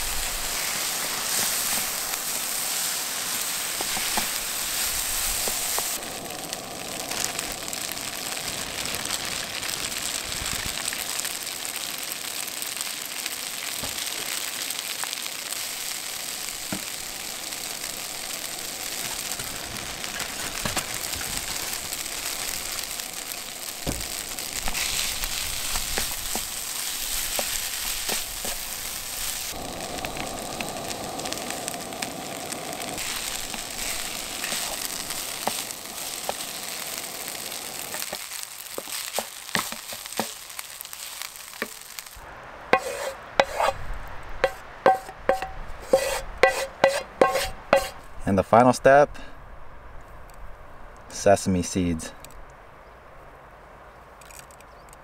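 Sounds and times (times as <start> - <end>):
rice sizzling in a frying pan: 0.0 - 48.1
wooden spatula scraping pan: 42.7 - 43.8, 44.4 - 48.0.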